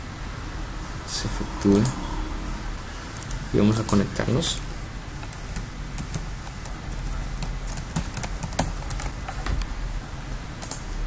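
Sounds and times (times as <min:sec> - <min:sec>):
computer keyboard keys clicking: 0:05.2 - 0:09.7, 0:10.6 - 0:10.8.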